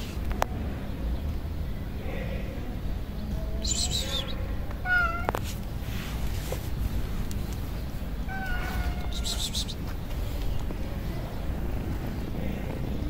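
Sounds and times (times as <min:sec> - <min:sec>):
kitten meowing: 0:04.8 - 0:05.5, 0:08.3 - 0:09.8.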